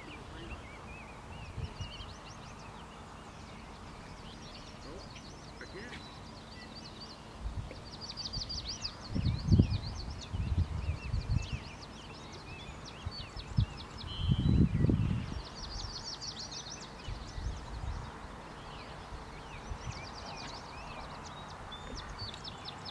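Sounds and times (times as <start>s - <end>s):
songbirds chirping and trilling: 0.0s - 22.9s.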